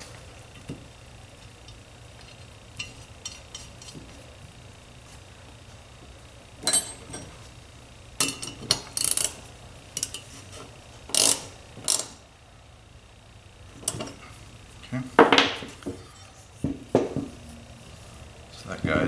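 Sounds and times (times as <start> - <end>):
ratcheting wrench clicking: 8.2 - 9.4, 10.0 - 10.2, 11.1 - 12.2.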